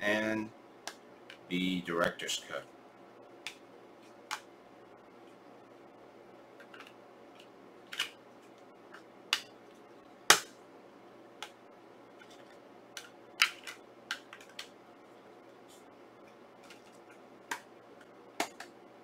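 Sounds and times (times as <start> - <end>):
plastic case clicks and snaps: 18.4 - 18.7.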